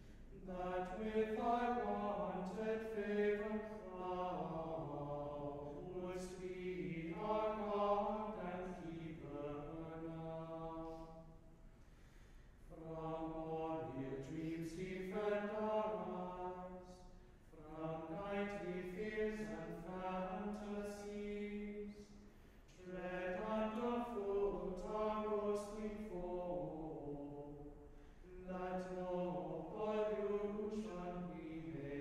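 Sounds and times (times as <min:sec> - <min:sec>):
choir chanting a cappella: 0:00.0 - 0:11.4, 0:12.7 - 0:32.0.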